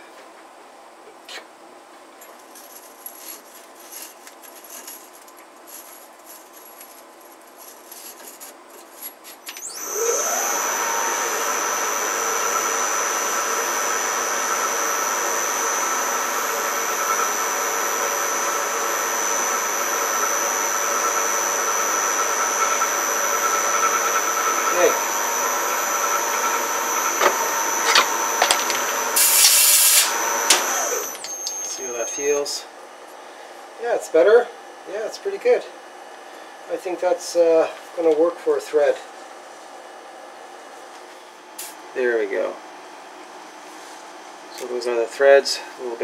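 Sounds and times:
lathe running whine: 0:09.6 - 0:32.6.

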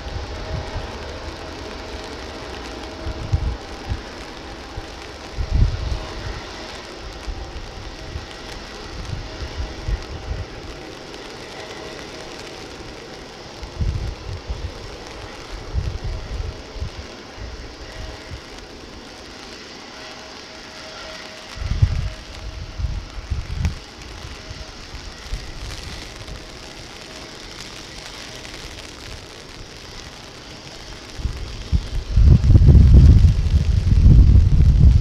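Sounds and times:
heavy rain hiss: 0:00.0 - 0:35.0
wind buffeting microphone: 0:00.0 - 0:35.0.

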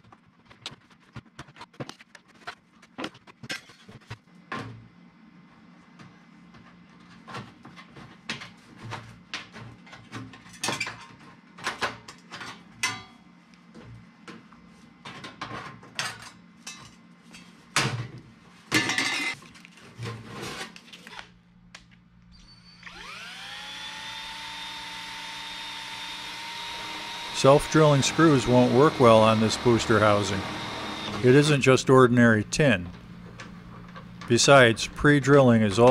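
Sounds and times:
drill motor whining: 0:22.4 - 0:31.7.

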